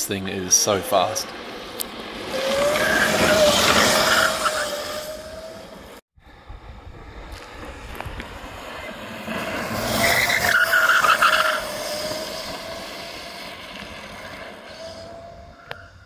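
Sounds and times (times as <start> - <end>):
tyres screeching: 0.0 - 6.0, 9.9 - 13.6
electric motor whining: 0.6 - 6.0, 9.6 - 15.9.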